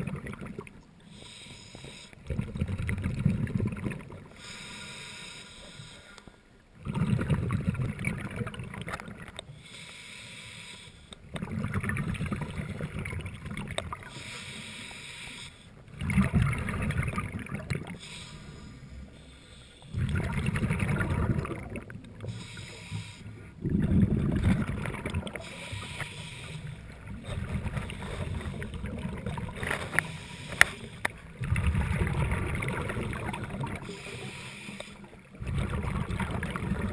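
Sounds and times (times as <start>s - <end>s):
exhaled bubbles bubbling: 0.0s - 0.9s, 2.2s - 4.4s, 6.8s - 9.5s, 11.2s - 14.2s, 15.8s - 18.1s, 19.9s - 22.6s, 23.4s - 34.3s, 35.0s - 36.9s
scuba regulator breathing: 1.0s - 2.3s, 4.3s - 6.6s, 9.5s - 11.3s, 14.0s - 15.9s, 17.9s - 20.3s, 22.2s - 24.6s, 25.2s - 28.8s, 29.5s - 31.4s, 33.6s - 35.4s.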